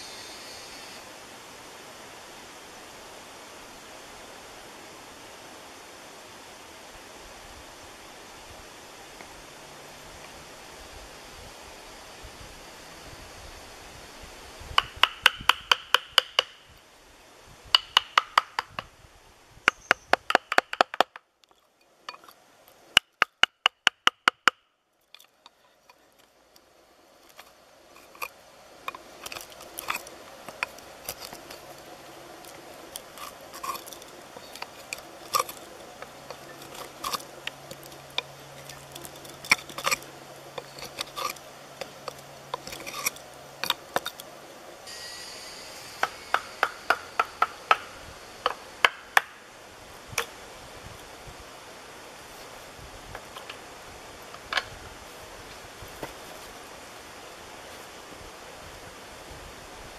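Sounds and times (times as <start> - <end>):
chisel scraping and crunching wood: 27.2 - 44.3
chisel strikes ringing: 44.9 - 49.0.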